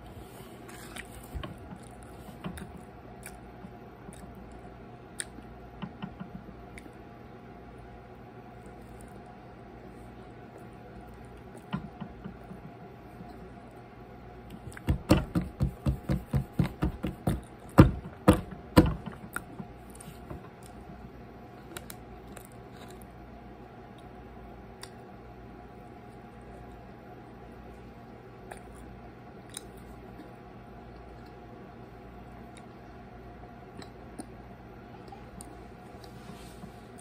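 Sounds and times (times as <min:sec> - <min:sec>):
fingers tapping table: 0:14.8 - 0:19.2.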